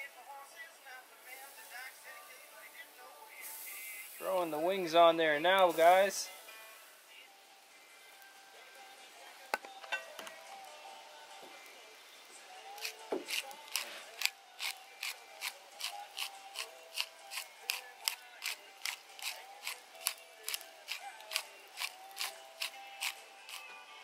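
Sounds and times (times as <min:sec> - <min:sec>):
background music with clicking beat: 0:12.7 - 0:23.8.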